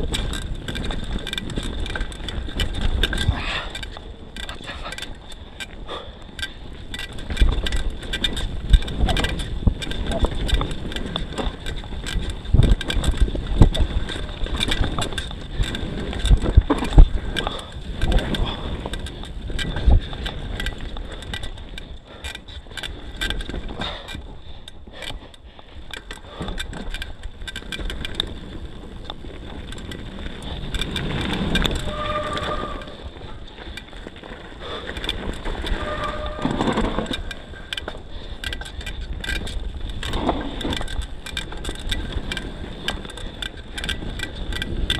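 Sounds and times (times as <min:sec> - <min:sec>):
mountain bike rattling over trail: 0:00.0 - 0:44.9
bike brake squeals: 0:31.7 - 0:33.4, 0:35.6 - 0:37.7.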